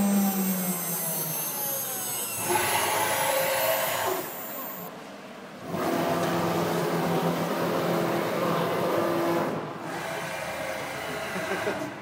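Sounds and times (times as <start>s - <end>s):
router motor whine: 0.0s - 4.9s.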